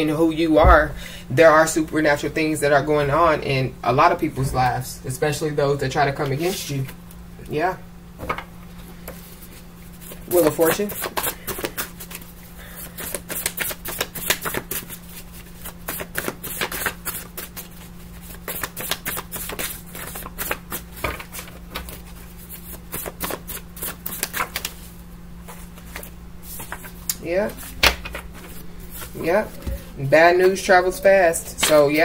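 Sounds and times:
cards being shuffled: 0:09.0 - 0:30.6, 0:31.5 - 0:32.0.

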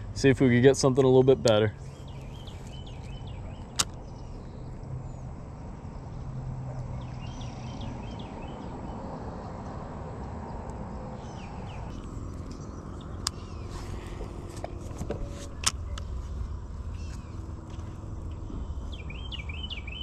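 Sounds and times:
low steady rumble: 0:00.0 - 0:20.0
sharp click: 0:03.7 - 0:04.0
faint bird chirps: 0:18.3 - 0:20.0.

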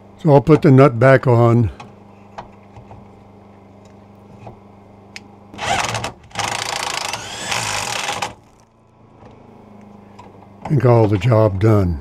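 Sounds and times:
rising whine: 0:05.6 - 0:10.0.

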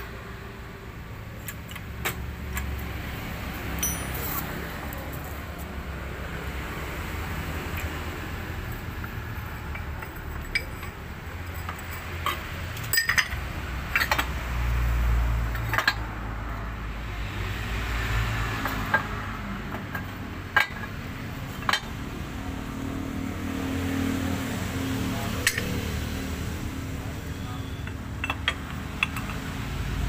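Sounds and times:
metallic clinks and knocks: 0:01.3 - 0:05.7, 0:07.6 - 0:14.5, 0:15.4 - 0:16.2, 0:18.6 - 0:22.0, 0:25.2 - 0:26.1, 0:27.2 - 0:29.6.

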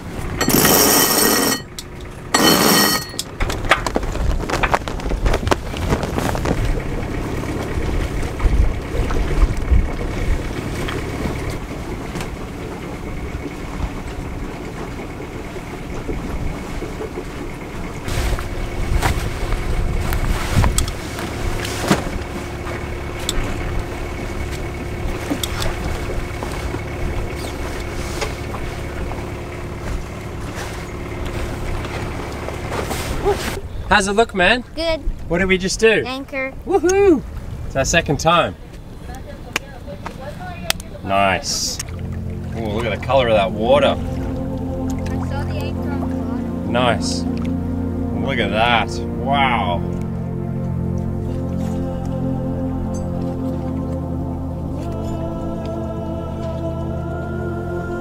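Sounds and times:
boat engine running: 0:00.0 - 0:58.0
water noise: 0:00.0 - 0:58.0
wind: 0:00.0 - 0:58.0
winch rattle: 0:00.3 - 0:18.9.

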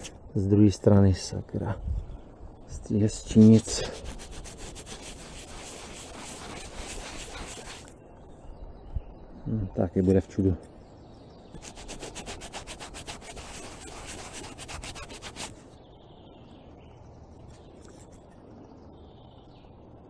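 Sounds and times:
metal tag rubbed against fabric: 0:03.0 - 0:08.0, 0:11.6 - 0:15.6.

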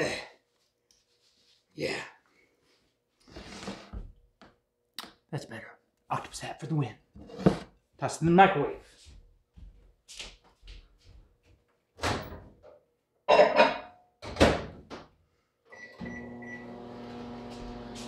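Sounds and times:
microwave humming: 0:15.8 - 0:18.0.

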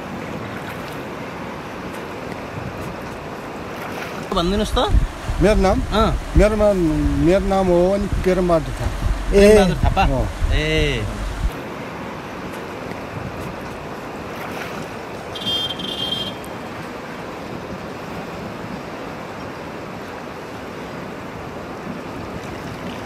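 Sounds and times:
river water rushing: 0:00.0 - 0:13.2, 0:13.8 - 0:15.4, 0:16.1 - 0:23.0
wind on microphone: 0:04.3 - 0:11.5.

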